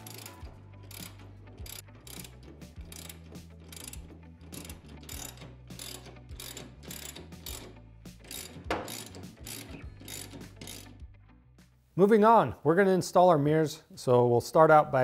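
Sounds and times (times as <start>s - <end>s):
ratchet wrench clicking: 0.0s - 11.0s.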